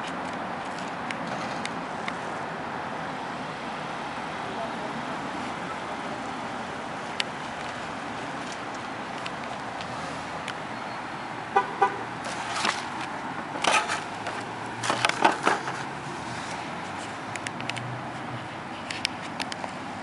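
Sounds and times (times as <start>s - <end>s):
street traffic noise: 0.0s - 20.0s
car horn toot: 11.5s - 12.1s.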